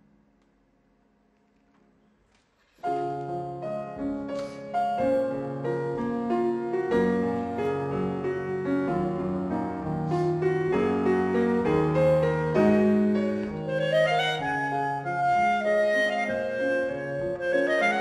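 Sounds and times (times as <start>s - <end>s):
grand piano chords and runs: 2.8s - 18.0s.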